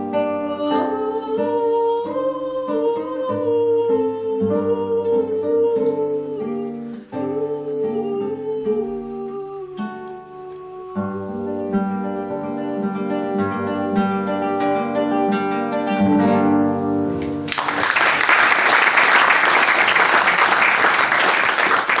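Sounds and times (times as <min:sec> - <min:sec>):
classical guitar playing: 0:00.0 - 0:17.6
audience applause: 0:17.4 - 0:22.0.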